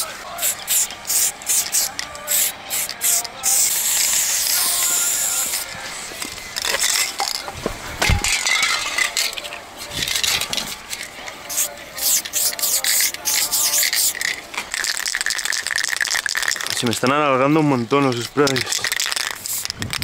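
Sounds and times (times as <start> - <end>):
spray can hiss: 0.0 - 7.4, 8.9 - 16.8, 18.5 - 20.0
spray can ball rattling: 0.0 - 20.0
scraping and handling noises: 5.6 - 14.9.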